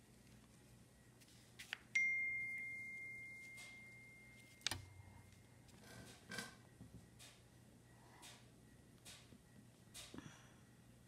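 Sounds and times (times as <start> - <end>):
bell-like ding: 2.0 - 4.4.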